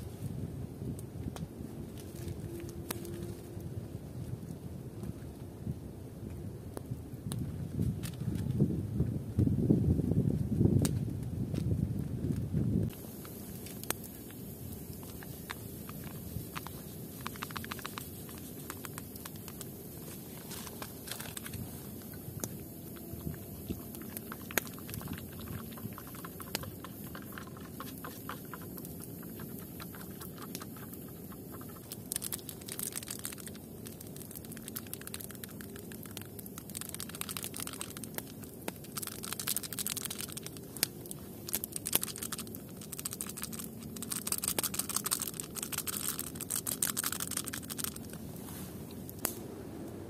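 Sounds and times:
campfire crackling and popping: 10.7s - 50.0s
plastic sachet crinkling: 12.9s - 48.4s
twig stirring in steel mug: 13.4s - 40.6s.

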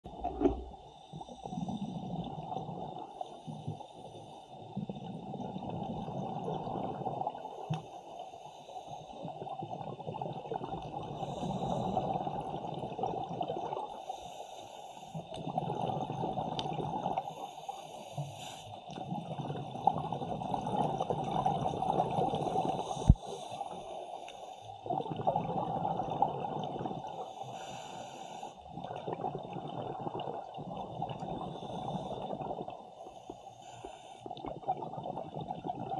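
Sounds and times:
exhaled bubbles burbling: 0.0s - 3.2s, 4.7s - 7.6s, 9.3s - 13.9s, 15.4s - 17.2s, 18.9s - 23.2s, 24.8s - 27.2s, 28.7s - 32.9s, 34.2s - 35.9s
regulator inhale hiss: 0.8s - 2.2s, 7.8s - 9.3s, 11.2s - 12.2s, 14.0s - 15.3s, 17.2s - 18.9s, 22.5s - 24.9s, 27.1s - 28.8s, 31.4s - 34.4s.

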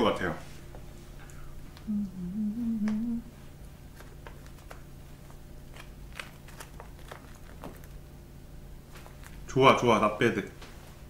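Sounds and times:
baking paper crinkling: 5.6s - 8.0s.

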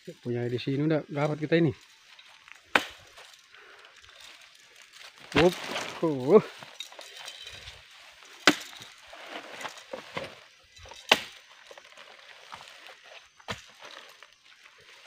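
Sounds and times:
sharp chopping knocks: 2.7s - 3.0s.

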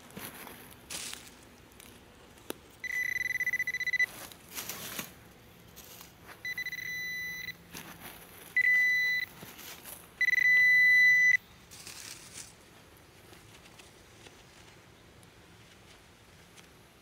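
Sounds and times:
metal detector beeps: 2.8s - 4.1s, 6.4s - 7.6s, 8.6s - 9.4s, 10.2s - 11.4s
soil scraping: 4.0s - 6.5s, 7.7s - 8.6s.

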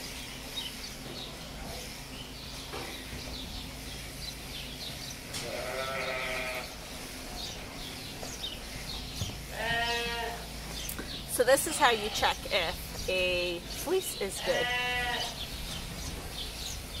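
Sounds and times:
sheep bleating: 5.4s - 6.7s, 9.5s - 10.5s, 11.7s - 12.5s, 14.4s - 15.4s.

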